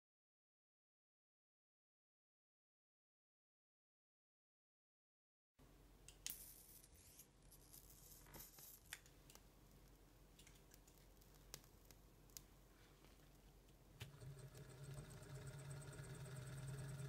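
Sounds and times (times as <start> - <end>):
faint room hiss: 5.6 - 17.0.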